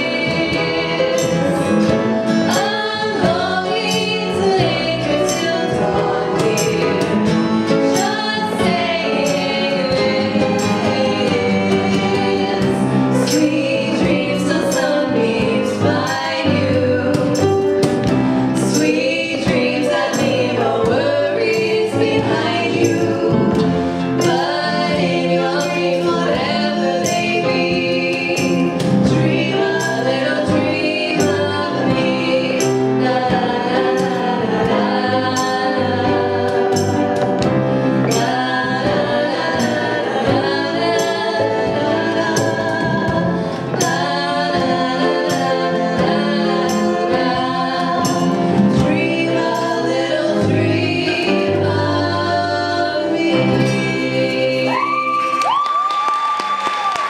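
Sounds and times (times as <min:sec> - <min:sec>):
female and male voices singing: 0:00.0 - 0:17.7, 0:18.6 - 0:37.3, 0:38.0 - 0:55.7.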